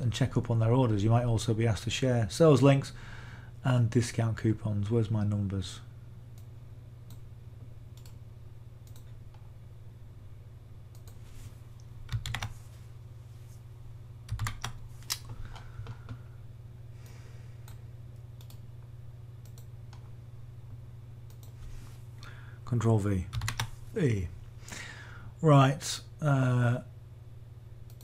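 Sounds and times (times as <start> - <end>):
low electrical hum: 0.0 - 28.0
computer keyboard keystrokes: 12.1 - 12.5, 14.3 - 16.0, 23.3 - 23.7.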